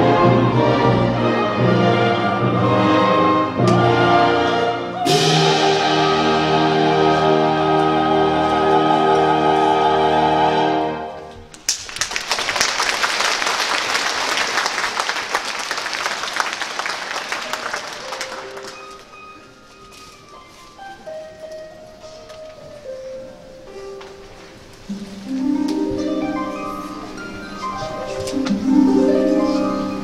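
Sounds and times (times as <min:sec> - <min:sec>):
orchestral music with held chords: 0:00.0 - 0:11.4, 0:18.3 - 0:30.0
audience applause: 0:11.6 - 0:19.1.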